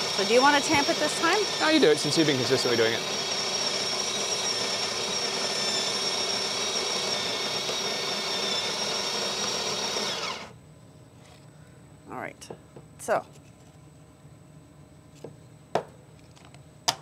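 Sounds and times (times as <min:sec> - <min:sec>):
coffee grinder whirring: 0:00.0 - 0:10.6.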